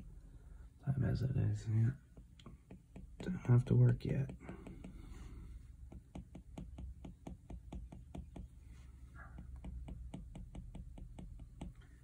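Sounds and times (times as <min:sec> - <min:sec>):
stylus tapping on glass screen: 0:02.1 - 0:05.0, 0:05.8 - 0:08.6, 0:09.2 - 0:12.0.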